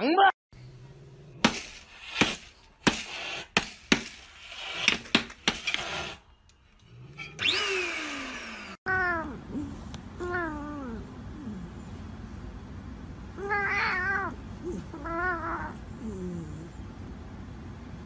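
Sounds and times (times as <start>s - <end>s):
cat crying: 8.8s - 11.7s, 13.4s - 16.8s.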